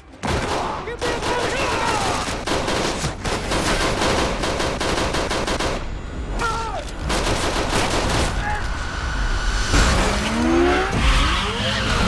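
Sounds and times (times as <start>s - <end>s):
rapid automatic rifle fire: 0.2s - 5.9s, 7.0s - 8.4s.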